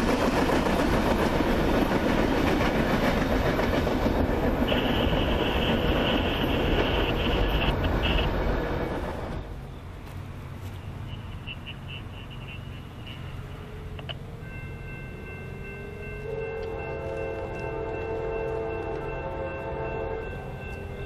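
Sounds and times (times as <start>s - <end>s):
freight train rumbling on rails: 0.0s - 21.0s
locomotive horn chord: 4.6s - 8.4s, 16.0s - 21.0s.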